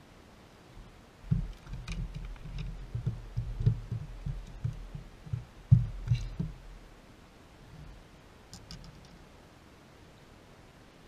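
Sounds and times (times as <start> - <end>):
fish flopping on carpeted deck: 1.3 - 6.8.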